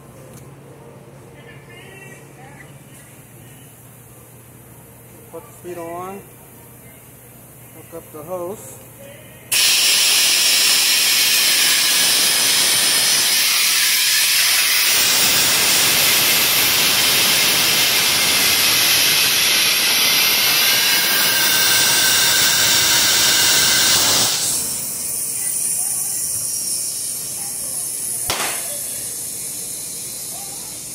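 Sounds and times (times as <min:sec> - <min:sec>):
compressed air hissing from hose: 0:22.6 - 0:30.9.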